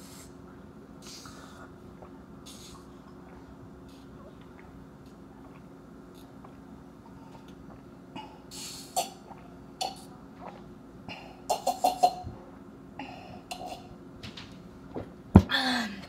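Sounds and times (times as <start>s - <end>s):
person gulping juice: 1.0s - 14.0s.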